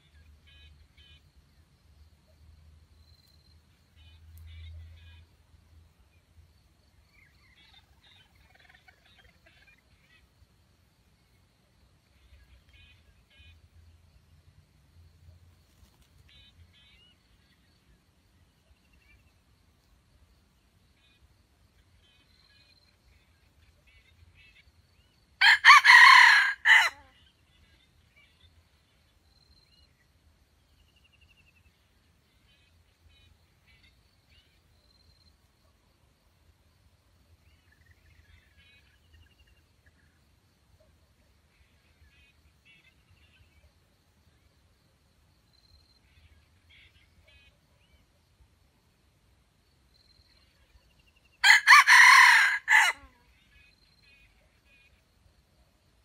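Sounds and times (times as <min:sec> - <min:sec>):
faint junglefowl clucking: 0:07.1 - 0:10.4, 0:25.4 - 0:28.3, 0:51.4 - 0:55.0
rooster crowing: 0:25.4 - 0:27.1, 0:51.4 - 0:53.1.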